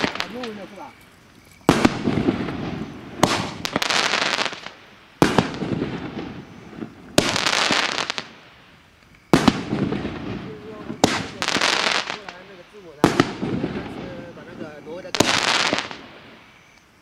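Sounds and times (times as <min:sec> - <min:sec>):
firework bangs: 0:00.0 - 0:00.9, 0:01.6 - 0:16.7
firework hiss: 0:00.0 - 0:17.0.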